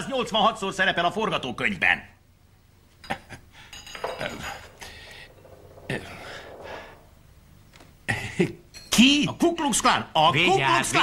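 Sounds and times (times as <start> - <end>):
light clinks and knocks: 3.7 - 7.9.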